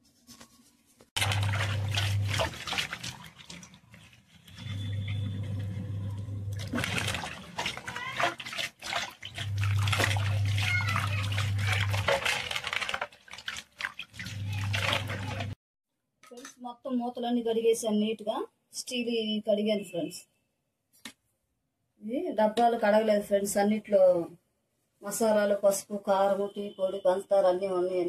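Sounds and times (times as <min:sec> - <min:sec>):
swishing and splashing water: 0:01.2 - 0:15.6
low steady hum: 0:04.4 - 0:07.4.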